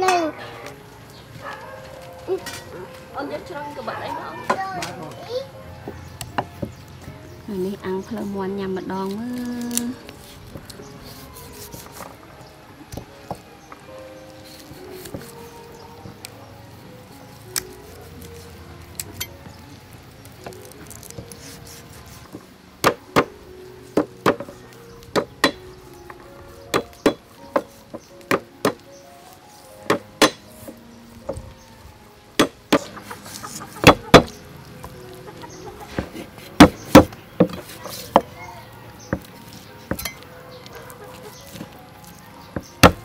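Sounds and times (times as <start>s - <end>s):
cleaver chopping on wooden board: 29.9s - 30.4s, 42.6s - 43.0s.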